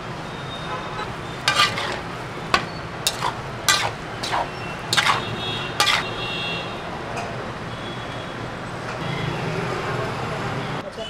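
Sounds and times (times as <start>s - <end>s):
low traffic hum: 0.0s - 10.8s
metal spatula scraping metal pan: 1.0s - 6.3s.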